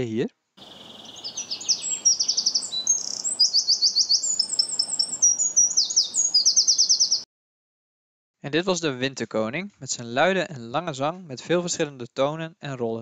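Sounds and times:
wren singing: 0:00.6 - 0:07.3.

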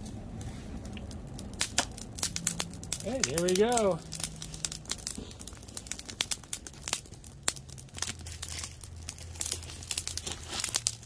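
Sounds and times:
wood fire crackling and popping: 0:00.0 - 0:11.0.

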